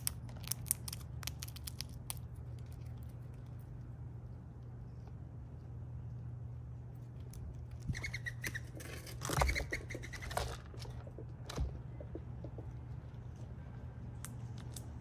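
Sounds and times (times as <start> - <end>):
steady low hum: 0.0 - 15.0
squirrel scratching through seeds: 7.0 - 11.2.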